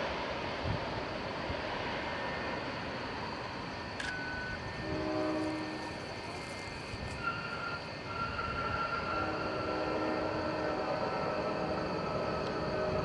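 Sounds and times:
jet airliner engine rushing: 0.0 - 13.0
faint whining tones: 0.6 - 13.0.

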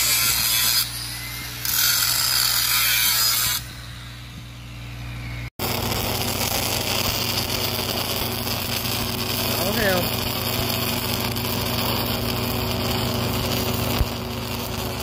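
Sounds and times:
angle grinder grinding steel: 0.0 - 15.0
arc welding hiss: 5.6 - 15.0.

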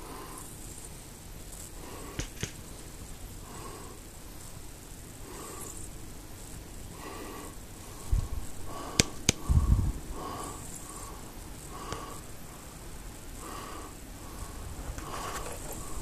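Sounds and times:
faint hiss: 0.0 - 16.0
sharp clicks: 2.2 - 2.6, 9.0 - 9.5.

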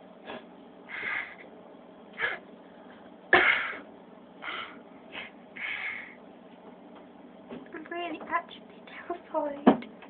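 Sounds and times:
person sniffing sharply: 4.5 - 6.2.

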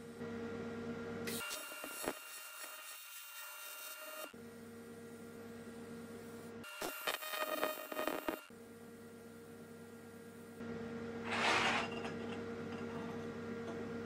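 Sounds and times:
welding arc buzzing: 6.6 - 8.5
metal tank scraping on table: 11.2 - 12.9.

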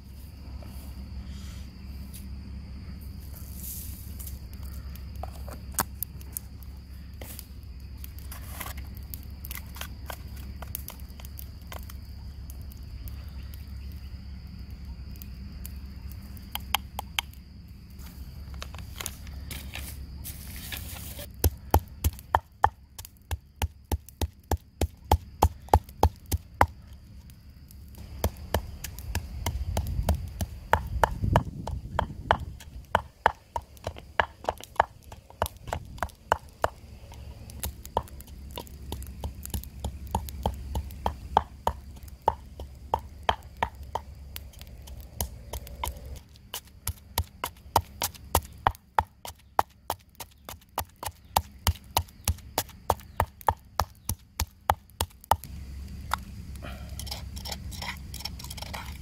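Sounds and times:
pestle pounding in a mortar: 28.2 - 36.8.

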